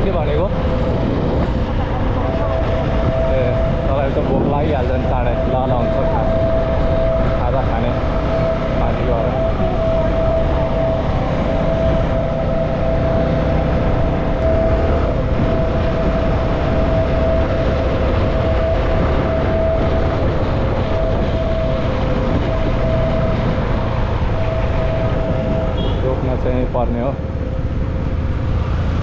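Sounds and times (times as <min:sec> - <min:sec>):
steady high hum: 0:00.0 - 0:26.4
wind rushing over microphone: 0:00.0 - 0:29.0
motorcycle engine running: 0:06.1 - 0:29.0.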